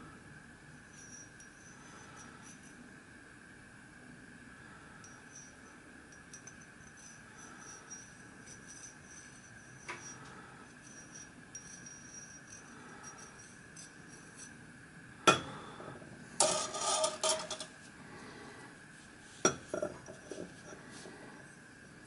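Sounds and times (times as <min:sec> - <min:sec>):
metal clatter: 0:16.4 - 0:17.7.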